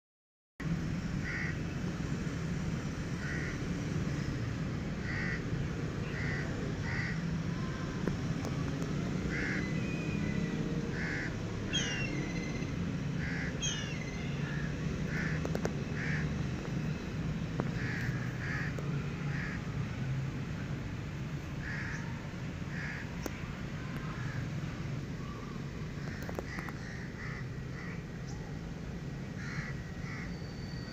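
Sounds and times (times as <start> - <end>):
birds calling: 3.2 - 7.3, 9.2 - 17.0, 17.6 - 19.6, 21.6 - 28.6, 29.4 - 30.9.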